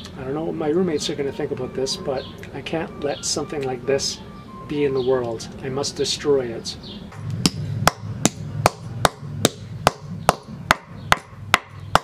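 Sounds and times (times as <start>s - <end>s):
rock pounding metal on concrete: 7.1s - 12.0s.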